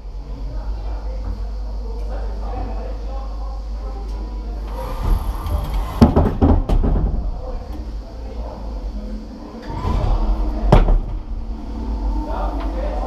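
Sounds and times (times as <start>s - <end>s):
low steady rumble: 7.0s - 13.0s.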